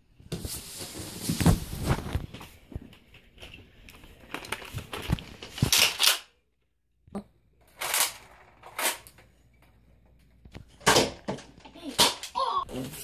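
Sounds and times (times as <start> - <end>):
rustling and handling noise: 0.0 - 6.6.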